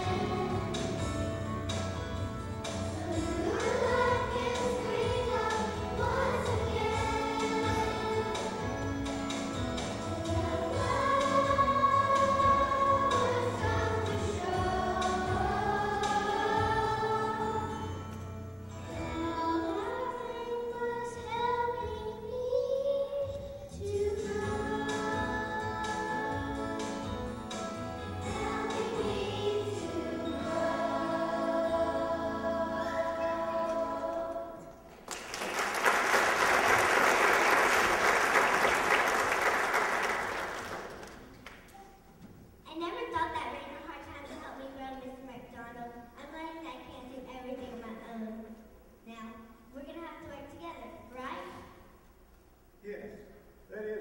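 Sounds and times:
children's choir singing: 0.0 - 1.8, 2.6 - 18.2, 23.8 - 41.0
audience applauding: 35.0 - 41.7.

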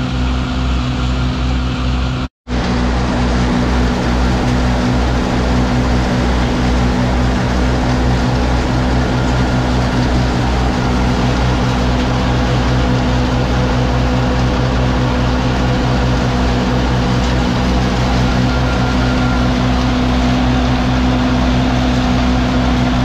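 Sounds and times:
low pulsing: 0.0 - 23.0
tractor engine: 0.0 - 23.0.

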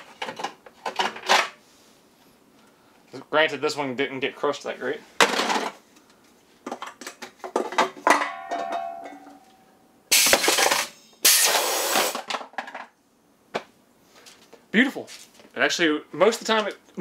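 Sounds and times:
metal can clinking: 7.6 - 9.5
loud bursts of air hiss: 10.1 - 12.2.

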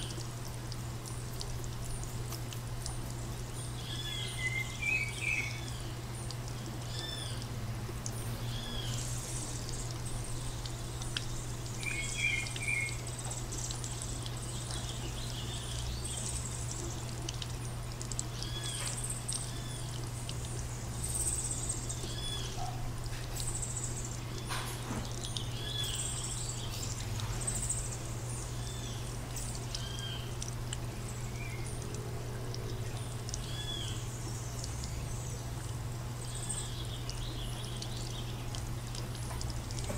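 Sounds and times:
steady low hum: 0.0 - 39.9
birds chirping: 1.1 - 39.9.

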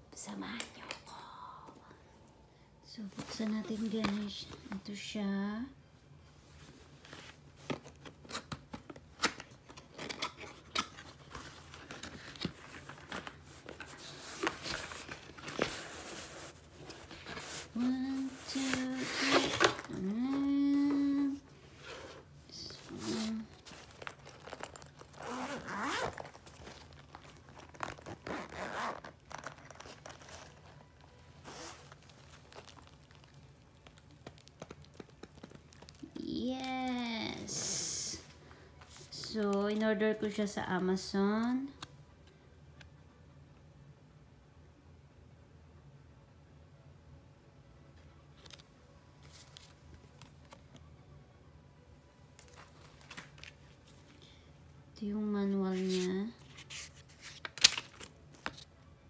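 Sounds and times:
low room hum: 0.0 - 59.0
paper cards shuffling: 7.0 - 21.3, 26.0 - 37.0, 52.4 - 54.1, 55.7 - 58.7
case clicks and rustles: 18.4 - 20.0, 22.8 - 30.8, 31.4 - 36.1
zipper rasping open: 21.8 - 30.6, 31.4 - 33.0.

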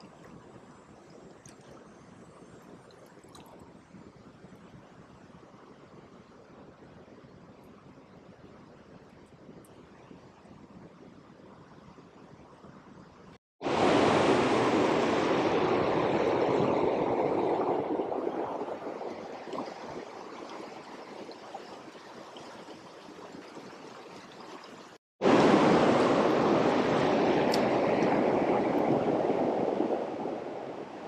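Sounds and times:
river current rushing: 13.6 - 21.4, 25.2 - 31.0.

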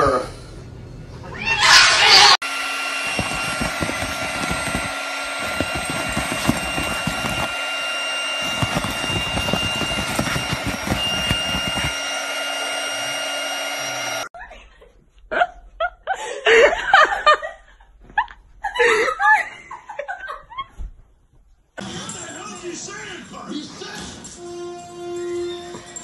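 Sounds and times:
dog paws scrabbling on air mattress: 3.0 - 7.6, 8.4 - 12.0.

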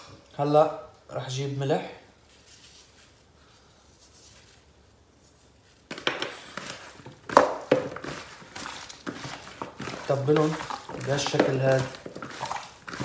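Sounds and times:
hands squishing raw chicken: 5.9 - 13.0.

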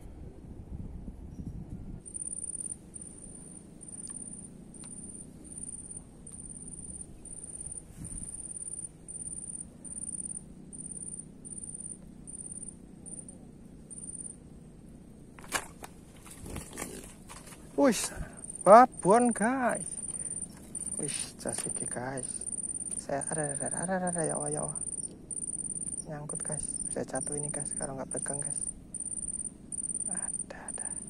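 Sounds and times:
faint low outdoor hum: 0.0 - 31.0
insect chirping: 2.0 - 31.0.

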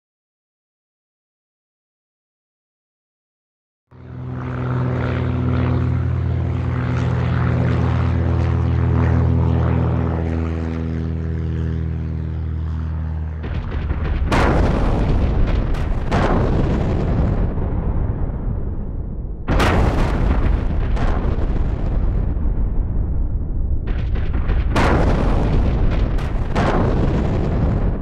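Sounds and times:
loud low drone of held tones: 3.9 - 28.0
loud bangs: 13.4 - 28.0.

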